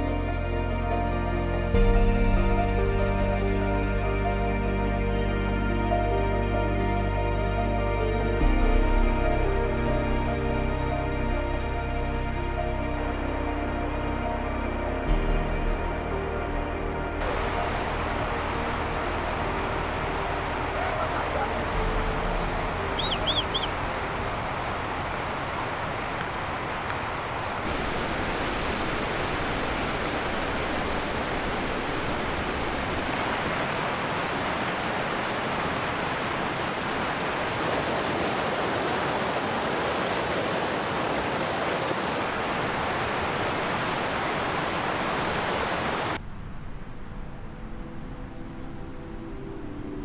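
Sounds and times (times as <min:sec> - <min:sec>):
mountain stream rushing over rocks: 0:17.2 - 0:46.2.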